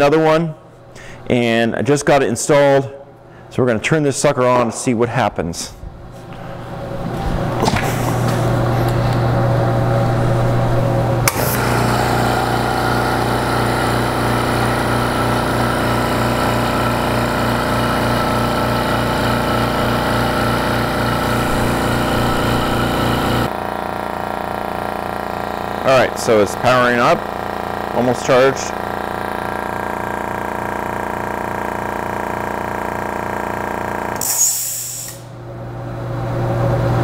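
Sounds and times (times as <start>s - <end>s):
air compressor running: 6.1s - 37.0s.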